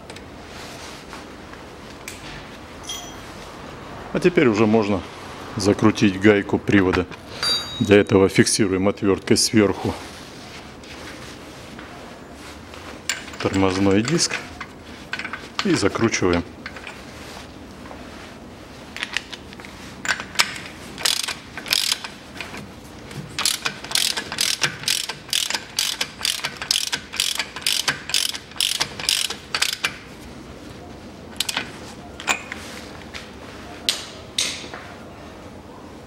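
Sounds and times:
socket ratchet clicking: 21.0s - 22.2s, 23.4s - 30.0s.

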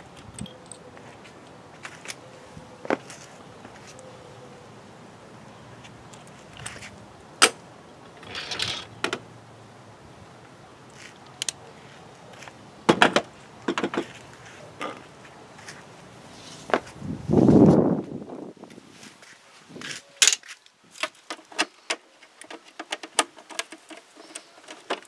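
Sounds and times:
sharp clicks and knocks: 12.9s - 14.2s, 20.2s - 25.0s
short rustle: 14.0s - 22.7s.

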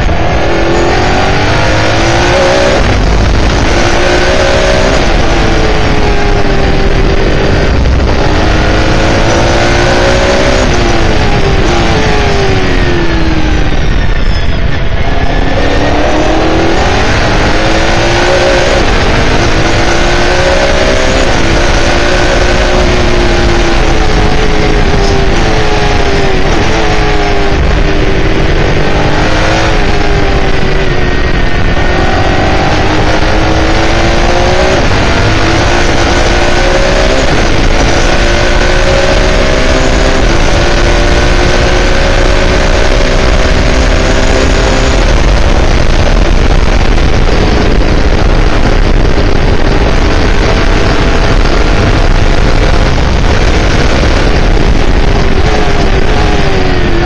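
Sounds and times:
race car engine accelerating: 0.0s - 57.0s
wind and tyre noise: 0.0s - 57.0s.

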